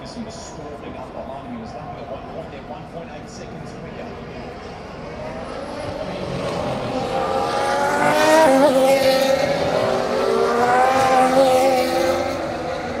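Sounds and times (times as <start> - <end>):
racing car engine passing: 3.6 - 13.0.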